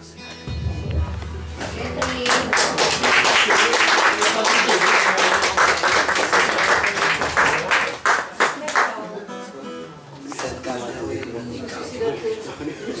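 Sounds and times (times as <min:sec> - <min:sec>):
audience applauding: 0:01.8 - 0:09.0.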